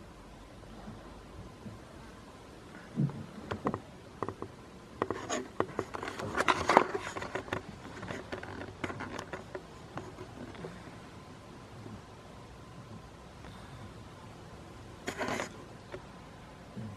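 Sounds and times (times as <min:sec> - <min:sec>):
small knocks on camera: 0:03.0 - 0:10.8.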